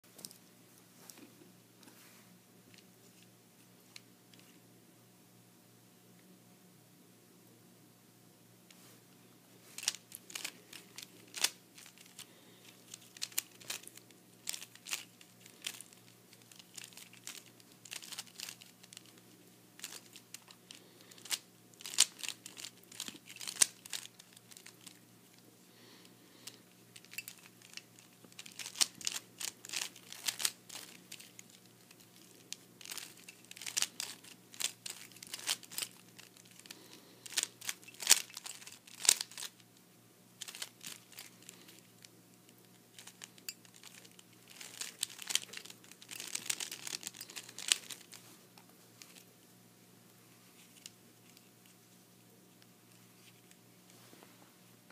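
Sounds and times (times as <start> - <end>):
puzzle cube plastic clicking: 19.8 - 24.8, 28.4 - 31.4, 32.2 - 36.7.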